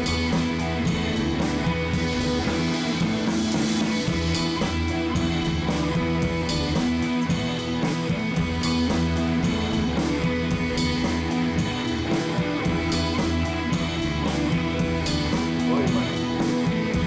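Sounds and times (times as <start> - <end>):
guitar background music: 0.0 - 17.0.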